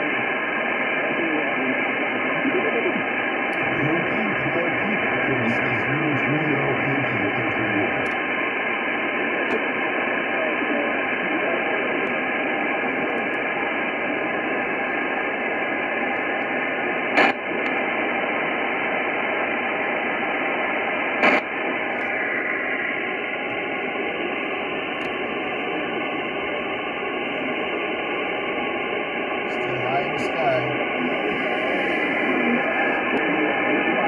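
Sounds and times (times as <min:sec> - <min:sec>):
radio speaker hiss: 0:00.0 - 0:34.0.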